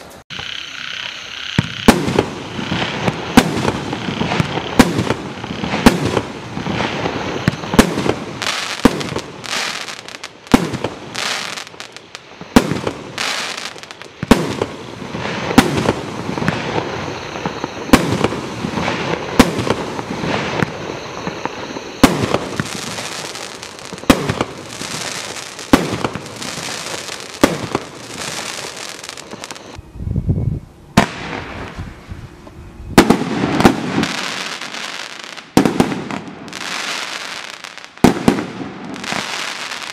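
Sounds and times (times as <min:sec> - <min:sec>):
continuous crackling hiss: 0:00.0 - 0:29.8, 0:30.6 - 0:39.9
fireworks shots and bursts: 0:00.0 - 0:29.8, 0:31.0 - 0:32.1, 0:33.0 - 0:39.9.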